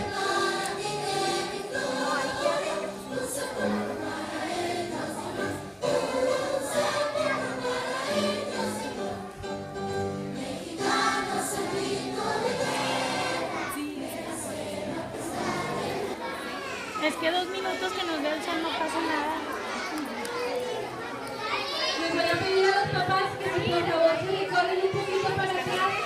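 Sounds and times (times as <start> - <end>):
music: 0.0 - 16.2, 22.2 - 26.0
choir singing held notes: 0.0 - 16.4.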